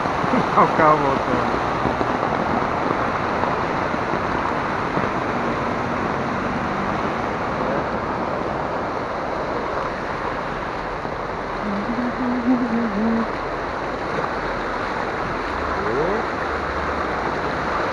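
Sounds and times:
heavy rain and running water: 0.0s - 17.9s.

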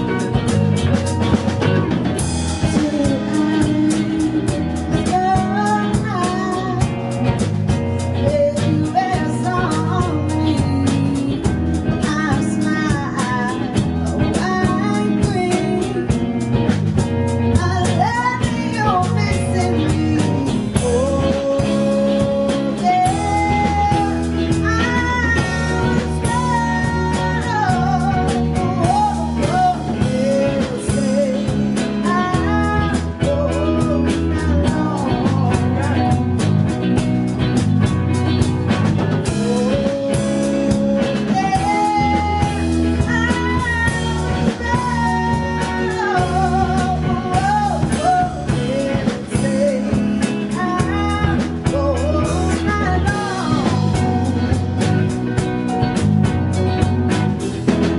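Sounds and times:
bending lead melody: 0.0s - 57.9s
drum kit: 0.0s - 57.9s
electric and acoustic guitars: 0.0s - 57.9s
electric bass: 0.0s - 57.9s
keyboard: 0.0s - 57.9s.

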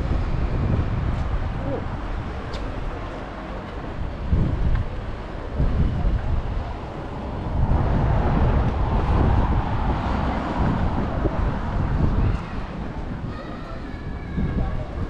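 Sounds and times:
street noise: 0.0s - 15.0s
wind buffeting microphone: 0.0s - 15.0s
car driving past: 6.7s - 12.0s.

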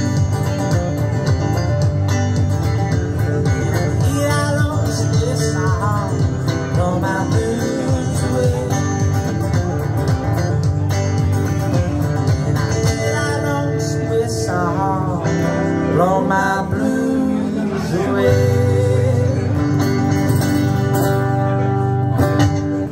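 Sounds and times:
acoustic guitar: 0.0s - 22.9s
electric guitar gliding lead notes: 0.0s - 22.9s.

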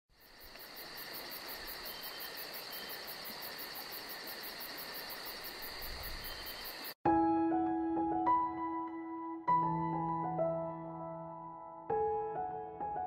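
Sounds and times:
insects chirping: 0.1s - 7.0s.

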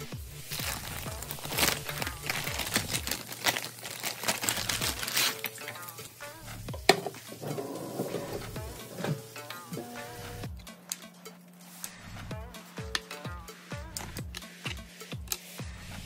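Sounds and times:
light background music: 0.0s - 16.0s
plastic bag crinkling: 0.4s - 6.2s.

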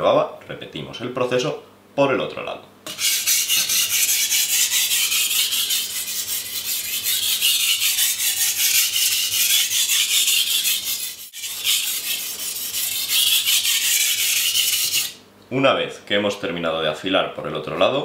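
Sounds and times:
knife scraping on whetstone: 2.9s - 15.2s.

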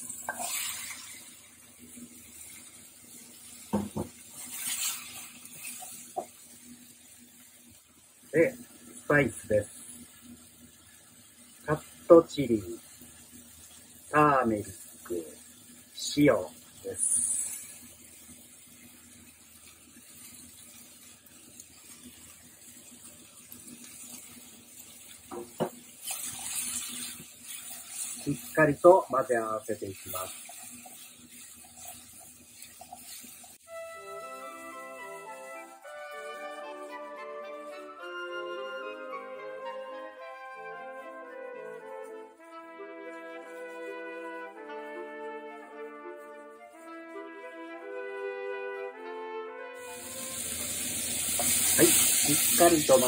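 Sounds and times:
beans scraped into frying pan: 0.0s - 1.4s, 4.2s - 6.3s, 17.0s - 17.8s, 25.9s - 29.0s, 49.8s - 53.0s
beans stirred rustling hiss: 0.0s - 49.1s, 49.8s - 53.0s
faint sizzle: 0.0s - 53.0s.

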